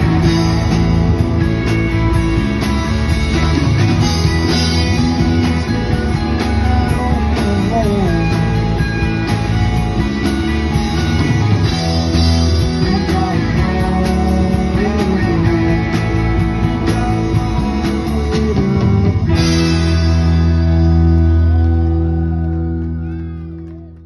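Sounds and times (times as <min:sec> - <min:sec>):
rock band playing: 0:00.0 - 0:24.0.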